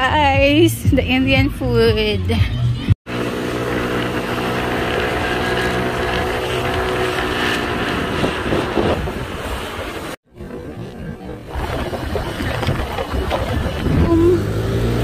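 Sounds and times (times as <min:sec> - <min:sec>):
engine droning hum: 0:02.2 - 0:15.0
noisy rush: 0:02.8 - 0:15.0.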